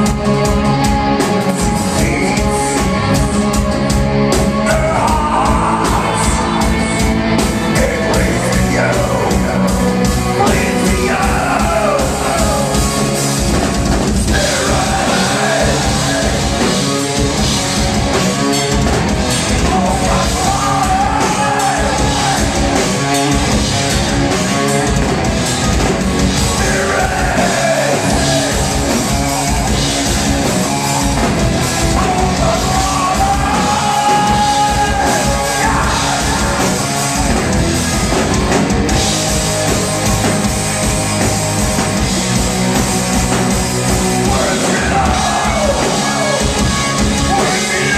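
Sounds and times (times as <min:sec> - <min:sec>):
drum kit: 0:00.0 - 0:47.9
electric guitar: 0:00.0 - 0:47.9
singer's voice: 0:01.4 - 0:13.4, 0:14.1 - 0:17.4, 0:19.4 - 0:23.4, 0:26.3 - 0:29.8, 0:30.7 - 0:37.3, 0:44.0 - 0:47.9.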